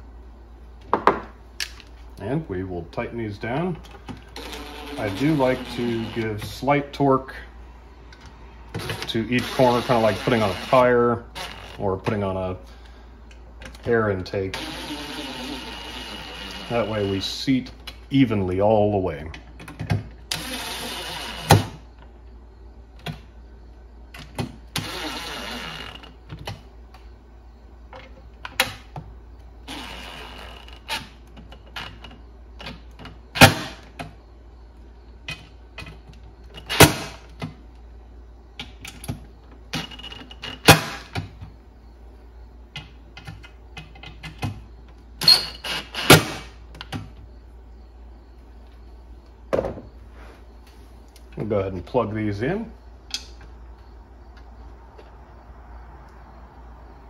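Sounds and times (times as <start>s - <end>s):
cordless drill driving screws: 4.4s - 6.2s, 14.6s - 16.9s
sharp clicks and knocks: 42.7s - 45.3s, 53.1s - 53.5s.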